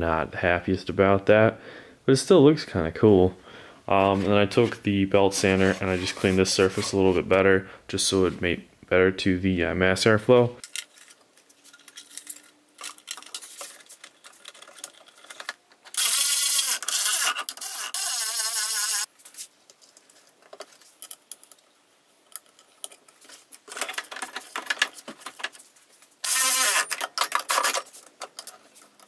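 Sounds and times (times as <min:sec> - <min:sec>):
plastic scraping and rubbing: 0:04.0 - 0:07.3, 0:23.1 - 0:29.0.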